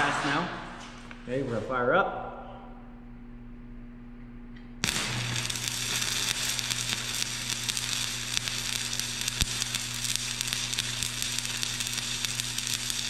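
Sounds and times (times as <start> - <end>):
low hum: 0.0 - 13.0
welding arc hissing and crackling: 4.8 - 13.0.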